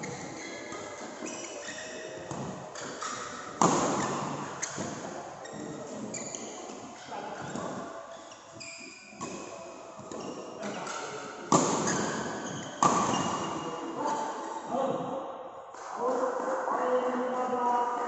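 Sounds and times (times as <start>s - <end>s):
shoes squeaking on court floor: 0.0s - 14.6s
racket hitting shuttlecock: 2.3s - 5.0s, 10.8s - 13.6s.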